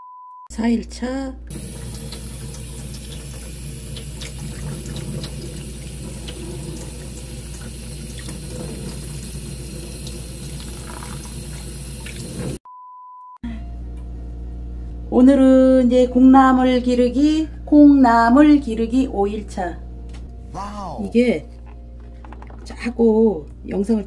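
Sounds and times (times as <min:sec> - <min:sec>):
water running in a sink: 0:01.5 - 0:12.6.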